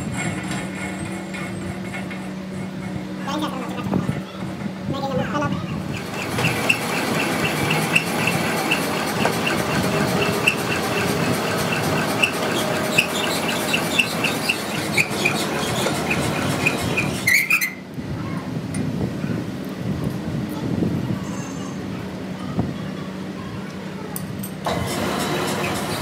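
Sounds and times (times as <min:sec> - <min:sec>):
mechanical running noise: 0:05.7 - 0:17.9, 0:24.6 - 0:26.0
short high squeak: 0:06.0 - 0:17.8, 0:21.2 - 0:21.8.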